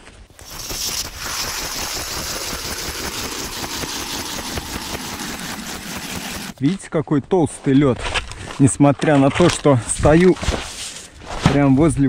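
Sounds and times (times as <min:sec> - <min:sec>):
ice auger grinding through ice: 0:00.4 - 0:06.6.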